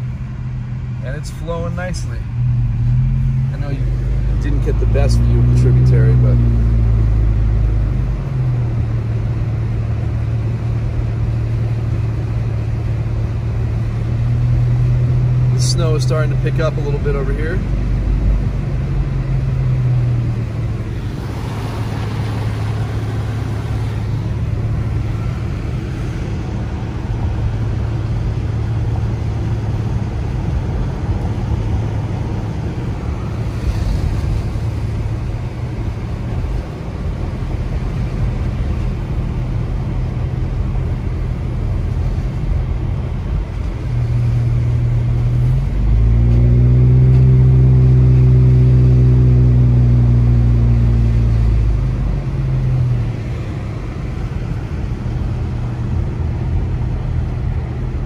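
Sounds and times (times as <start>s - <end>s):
car engine running: 0.0s - 58.0s
road noise inside car: 0.0s - 58.0s.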